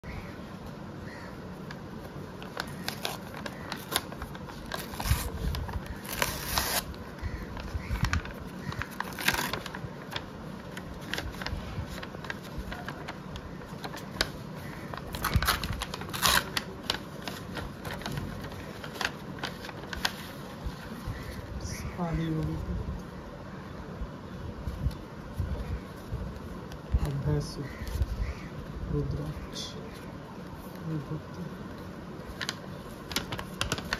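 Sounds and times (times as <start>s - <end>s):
paper crinkling: 1.5s - 22.6s, 29.2s - 33.9s
paper tearing: 2.4s - 7.0s, 7.9s - 10.2s, 13.8s - 20.4s, 32.3s - 33.9s.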